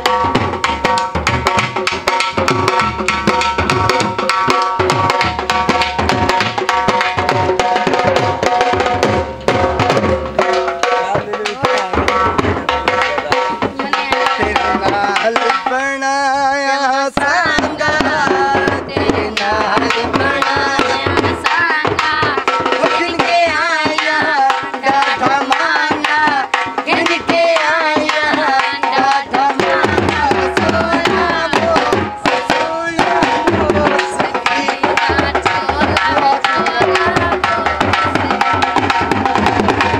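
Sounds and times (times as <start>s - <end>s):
dhol drums beaten with sticks: 0.0s - 39.9s.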